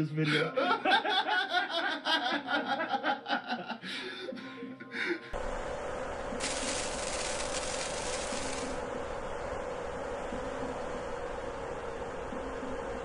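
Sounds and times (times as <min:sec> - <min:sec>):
people laughing: 0:00.2 - 0:05.3
faint hum: 0:05.3 - 0:13.0
steady hiss: 0:06.3 - 0:08.8.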